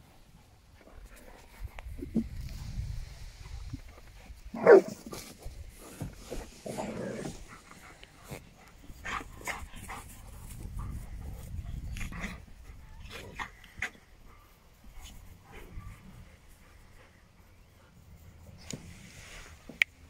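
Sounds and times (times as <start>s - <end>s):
dogs panting: 5.7s - 18.6s.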